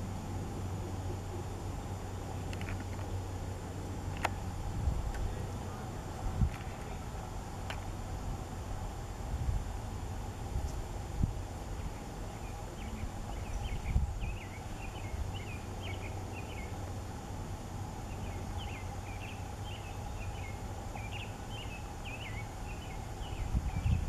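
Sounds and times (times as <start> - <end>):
songbird chirping: 11.7 - 24.0.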